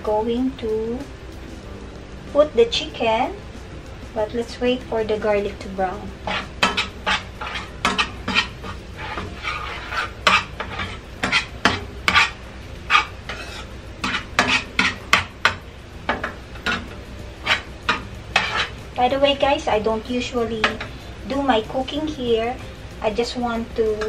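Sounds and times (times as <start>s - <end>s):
garlic sizzling in oil: 4.0s - 24.0s
metal spoon scraping a pan: 5.4s - 22.6s.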